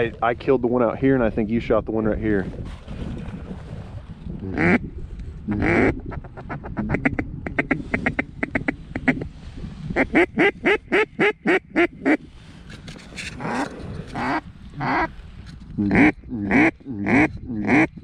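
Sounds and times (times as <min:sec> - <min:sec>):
duck chuckling calls: 0:04.4 - 0:04.9, 0:05.5 - 0:09.3, 0:10.0 - 0:12.2, 0:13.4 - 0:15.1, 0:15.8 - 0:18.0
duck quacking: 0:13.4 - 0:15.1, 0:15.8 - 0:17.9.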